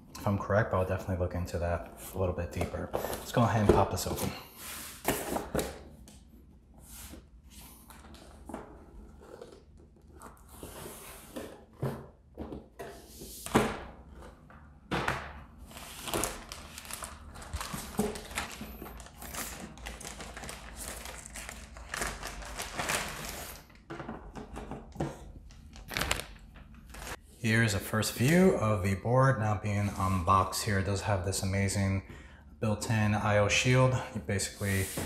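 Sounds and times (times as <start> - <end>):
plastic bag crinkling: 16.2 - 23.6, 25.6 - 27.2.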